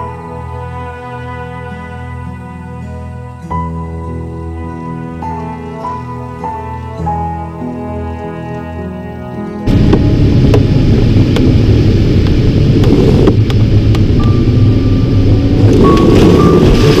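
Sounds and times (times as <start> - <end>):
airflow rushing around cockpit: 9.7 - 17.0
electronic instrument tone beeping: 14.0 - 17.0.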